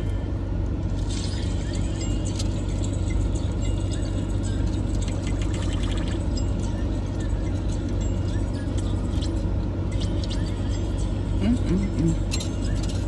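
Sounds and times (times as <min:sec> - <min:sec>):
car air conditioning blowing: 0:00.0 - 0:13.0.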